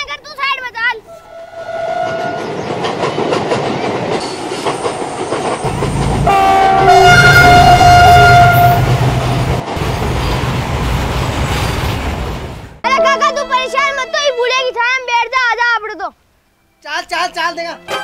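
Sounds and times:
train horn: 1.1 - 2.5, 6.2 - 9.0
wheels clacking over rail joints: 2.0 - 7.0.

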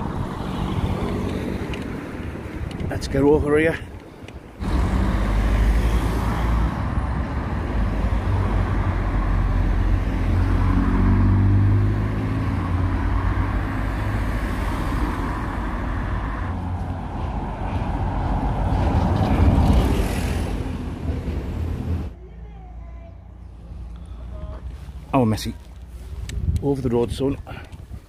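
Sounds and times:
cars driving past: 0.0 - 2.9, 4.3 - 22.2.

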